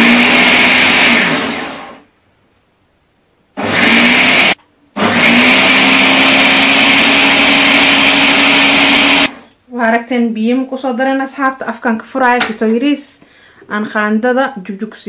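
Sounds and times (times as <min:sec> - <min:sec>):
blender grinding: 0:00.0 - 0:02.1, 0:03.6 - 0:09.5.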